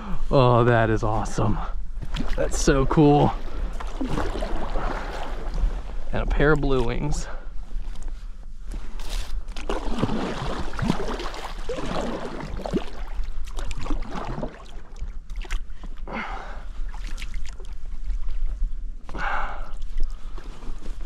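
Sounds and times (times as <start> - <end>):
water gurgling along hull: 0.0 - 7.4, 9.6 - 21.0
paddle splashing in water: 3.2 - 6.0, 9.1 - 15.7.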